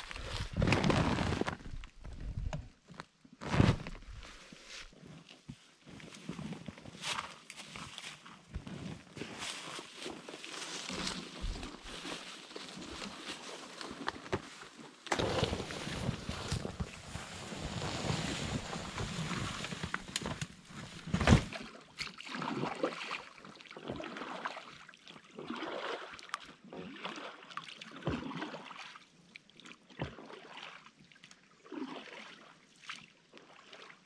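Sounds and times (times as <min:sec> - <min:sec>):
oar strokes swishing: 0:08.9 - 0:23.1
water splashing around boat: 0:09.0 - 0:34.0.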